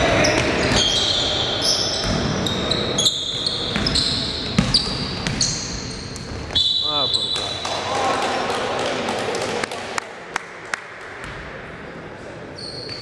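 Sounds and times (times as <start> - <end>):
sneakers squeaking: 0.0 - 7.7, 11.2 - 13.0
basketball bouncing: 2.0 - 2.5, 3.7 - 6.4.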